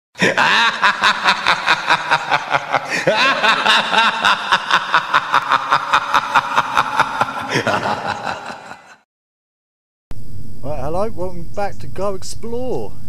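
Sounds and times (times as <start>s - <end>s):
laughter sound effect: 0.2s - 9.0s.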